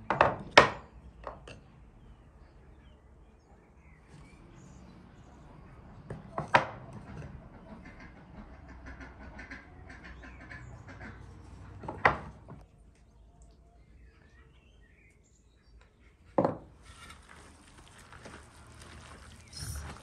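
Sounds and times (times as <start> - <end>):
faint poultry calls: 6.8 - 11.8.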